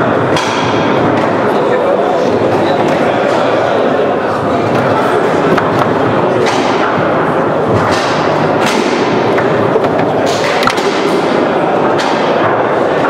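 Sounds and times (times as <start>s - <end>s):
background noise: 0.0s - 13.0s
foosball knocks and thuds: 7.7s - 11.1s.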